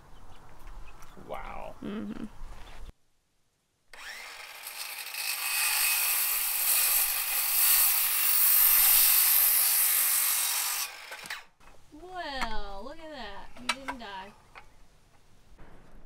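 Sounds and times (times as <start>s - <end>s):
circular saw cutting wood: 3.9s - 11.5s.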